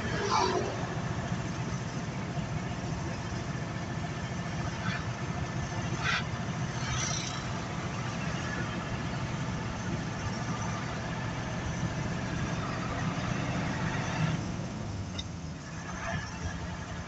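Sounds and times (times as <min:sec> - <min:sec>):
vehicle engine and road noise: 0:00.0 - 0:17.0.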